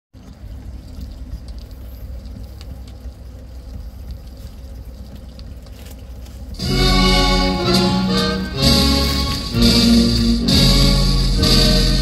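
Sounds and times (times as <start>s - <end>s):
faint clicks: 0.2s - 6.6s
turntable rumble and hum: 0.2s - 12.0s
vinyl record surface noise: 0.2s - 12.0s.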